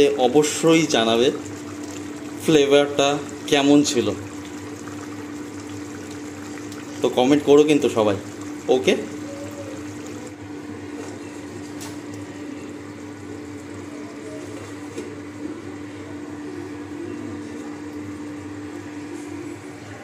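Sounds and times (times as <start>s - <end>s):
pan simmering: 0.0s - 19.4s
steady hum: 0.0s - 20.0s.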